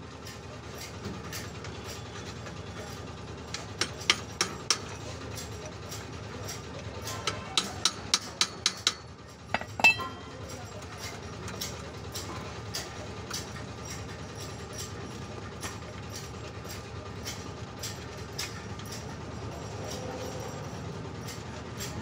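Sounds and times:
metal clinking on bicycle: 5.4 - 12.5.

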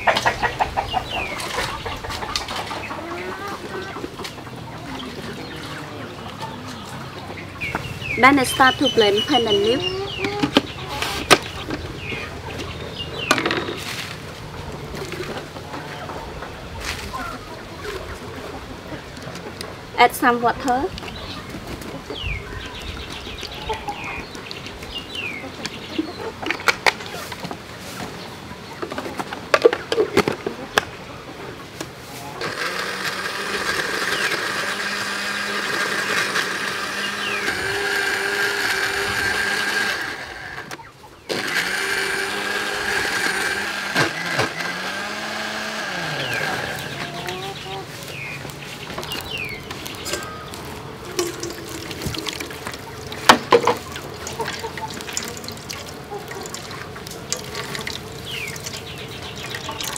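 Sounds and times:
blender motor running: 32.4 - 47.0.

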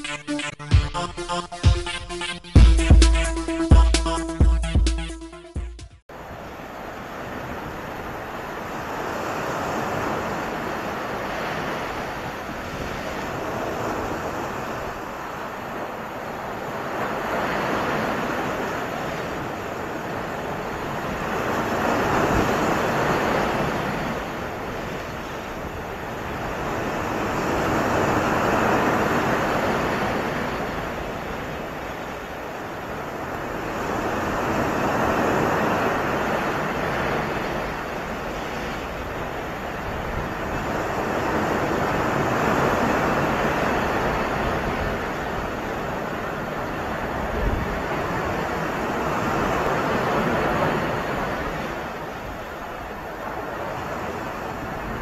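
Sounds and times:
sea surf breaking on shore: 6.1 - 55.0.

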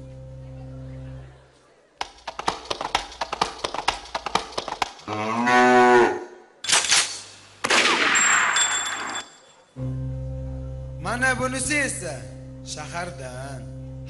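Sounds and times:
bull mooing: 5.1 - 6.3.

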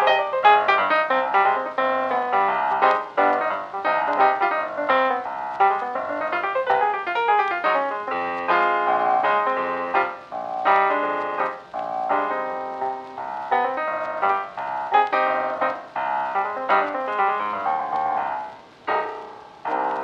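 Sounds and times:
piano melody of quick notes: 0.0 - 20.0.

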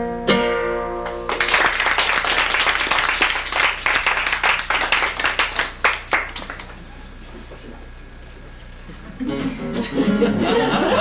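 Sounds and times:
strummed classical guitar chord: 0.0 - 1.3
audience clapping: 1.1 - 7.5.

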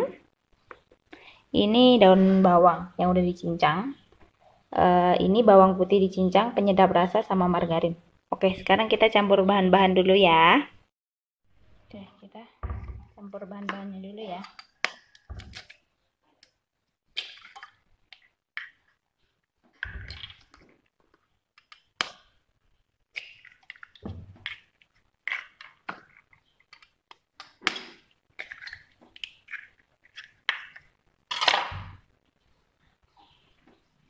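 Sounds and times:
eggshells crackling: 16.5 - 32.4.

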